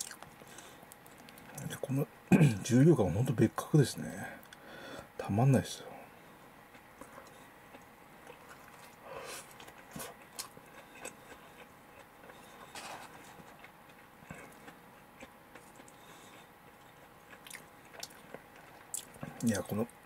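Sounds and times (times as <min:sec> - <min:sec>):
faint chewing: 0:00.0 - 0:01.8, 0:06.7 - 0:20.0.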